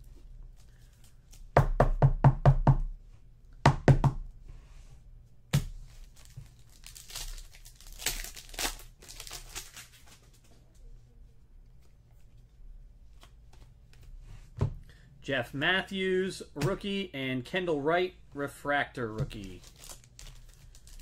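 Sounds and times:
cards and wrappers rustling: 5.7s - 11.1s, 19.2s - 21.0s.

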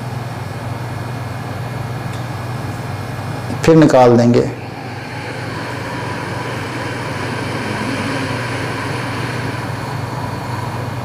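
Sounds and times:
constant low hum: 0.0s - 11.0s
slow breath out: 4.5s - 11.0s.

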